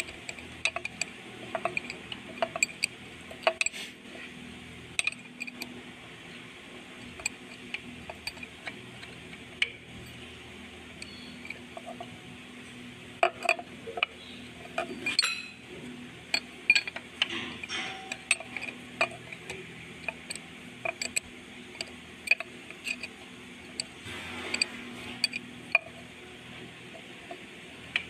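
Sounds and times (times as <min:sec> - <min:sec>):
wrench clinking against metal: 0:00.0 - 0:03.8, 0:05.0 - 0:05.7, 0:07.0 - 0:10.2, 0:13.2 - 0:15.6, 0:16.3 - 0:23.9, 0:24.5 - 0:26.0.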